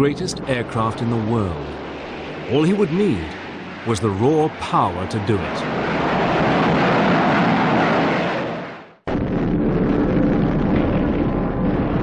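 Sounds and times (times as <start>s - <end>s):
aircraft flying low past: 0.0s - 9.0s
steady rumble: 0.0s - 12.0s
low hum: 5.6s - 12.0s.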